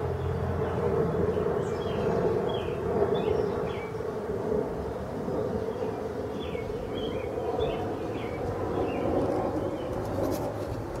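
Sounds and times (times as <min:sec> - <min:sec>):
bird chirping: 0:00.1 - 0:04.0, 0:05.7 - 0:10.1.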